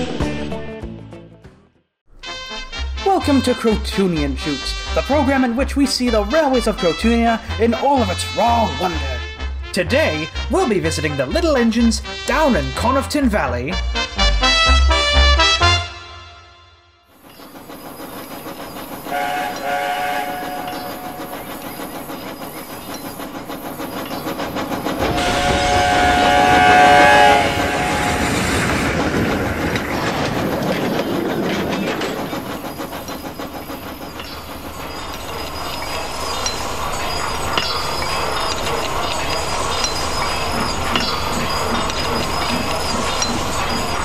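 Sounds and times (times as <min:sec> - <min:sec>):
train running: 0:02.5 - 0:16.0, 0:17.1 - 0:44.0
wheels clicking over rail joints: 0:17.2 - 0:44.0
steam train whistle: 0:19.1 - 0:21.6, 0:25.0 - 0:28.8.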